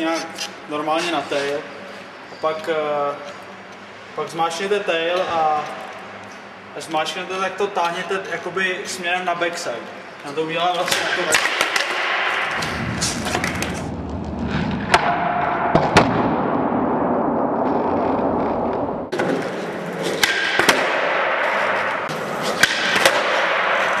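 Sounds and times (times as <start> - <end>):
skateboard wheels rolling on concrete: 11.3 - 16.2, 17.6 - 24.0.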